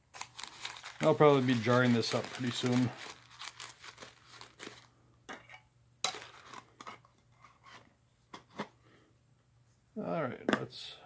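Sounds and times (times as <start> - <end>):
paper and cardboard crinkling: 0.0 - 4.9, 6.1 - 6.7.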